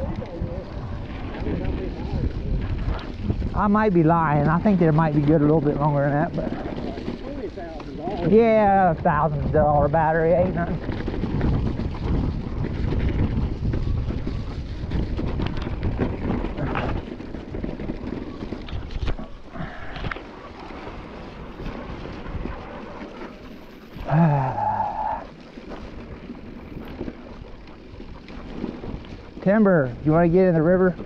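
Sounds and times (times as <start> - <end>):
wind buffeting microphone: 0.0 - 31.0.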